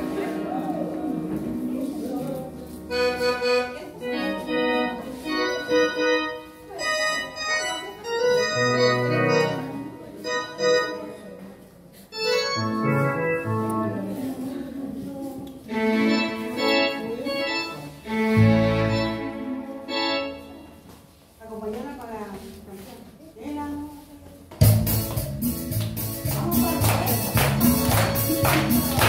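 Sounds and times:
electronic organ melody: 0:00.0 - 0:11.3, 0:12.1 - 0:14.3, 0:15.8 - 0:20.7.

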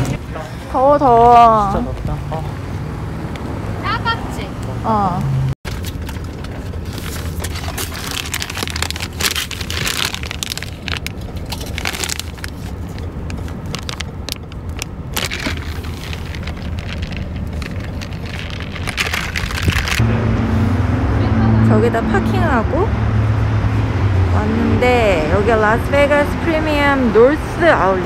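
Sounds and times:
plastic bag crinkling: 0:05.7 - 0:20.0.

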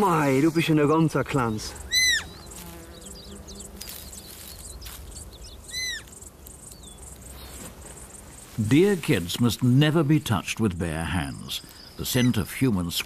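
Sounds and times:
faint bird chirps: 0:01.3 - 0:08.7
deer fawn bleating: 0:01.8 - 0:02.4, 0:05.6 - 0:06.1.

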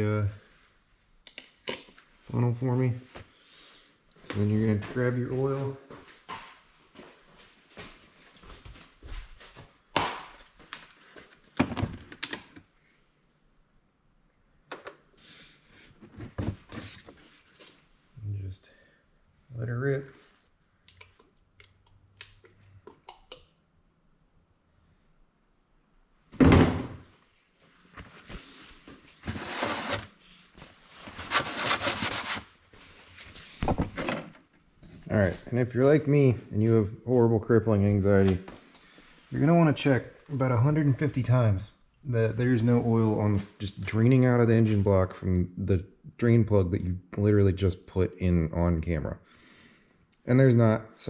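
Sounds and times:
loud thunk: 0:26.4 - 0:27.0
rubbing and rustling: 0:27.4 - 0:33.6.

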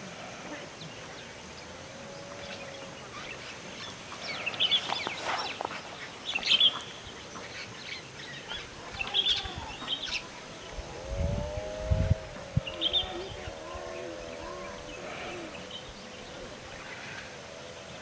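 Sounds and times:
birds chirping: 0:00.0 - 0:18.0
low rumble: 0:09.6 - 0:16.9.

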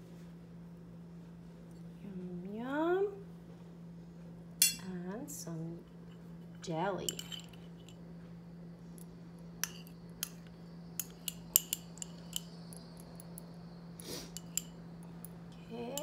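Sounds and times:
knife clinking on ceramic ramekin: 0:04.6 - 0:04.9.

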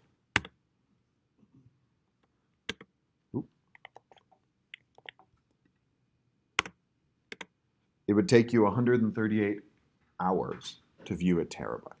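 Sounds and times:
keyboard typing: 0:00.4 - 0:00.6, 0:02.7 - 0:02.9, 0:03.7 - 0:05.4, 0:06.6 - 0:07.5.

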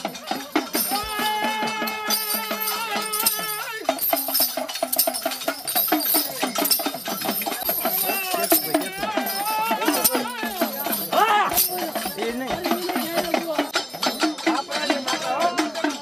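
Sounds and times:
jingling rattle: 0:00.0 - 0:16.0
percussion rhythm: 0:00.0 - 0:16.0
person singing: 0:00.8 - 0:04.4.

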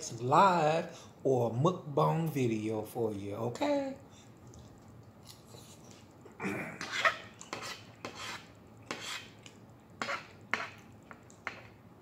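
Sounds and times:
fork scraping on plate: 0:06.8 - 0:11.7.

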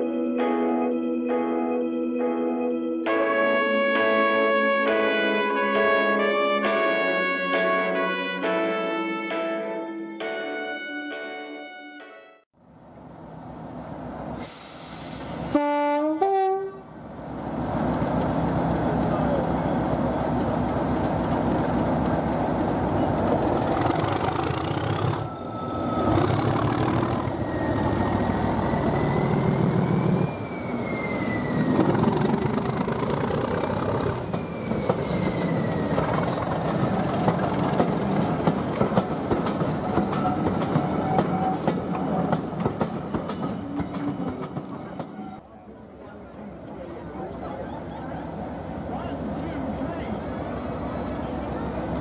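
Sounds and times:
diesel locomotive engine running: 0:16.8 - 0:41.0, 0:45.6 - 0:52.0
wheels clattering over rail joints: 0:17.7 - 0:27.6, 0:31.6 - 0:45.4
train wheels squealing: 0:24.6 - 0:37.7, 0:40.2 - 0:41.8, 0:43.2 - 0:45.4, 0:50.5 - 0:52.0.

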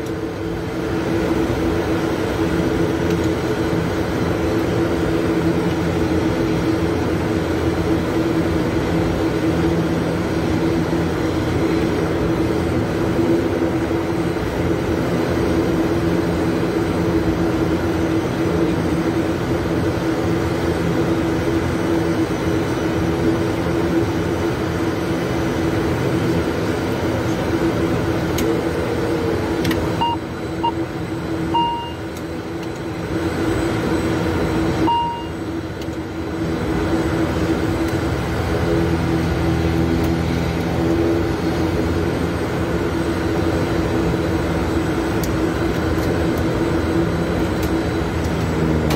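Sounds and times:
turboprop engines droning: 0:00.0 - 0:48.9
short electronic beeps: 0:30.0 - 0:30.8, 0:31.5 - 0:32.1, 0:34.8 - 0:35.4.

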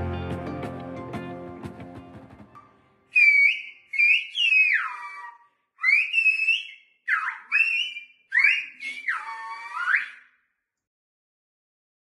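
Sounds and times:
person whistling gliding phrases: 0:03.1 - 0:10.4.

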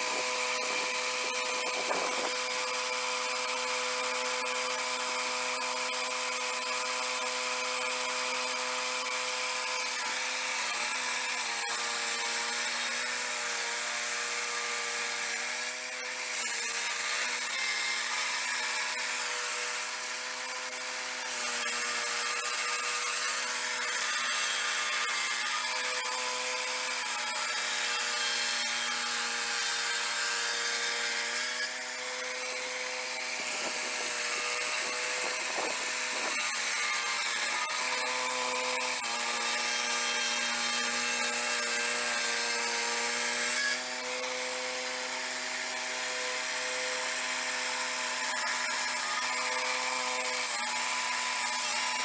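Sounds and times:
circular blade sawing log: 0:00.0 - 0:52.0
sawmill engine running: 0:31.6 - 0:36.4.

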